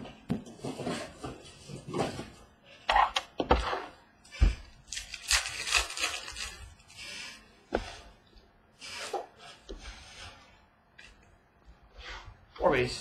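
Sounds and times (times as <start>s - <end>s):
card pack crinkling and rustling: 4.8s - 6.9s.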